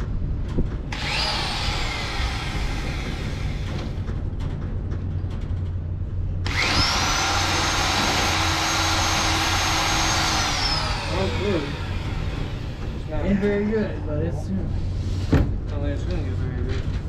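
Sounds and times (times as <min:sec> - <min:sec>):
steady low hum: 0:00.0 - 0:17.0
electric drill whining: 0:00.9 - 0:04.0, 0:06.4 - 0:13.0.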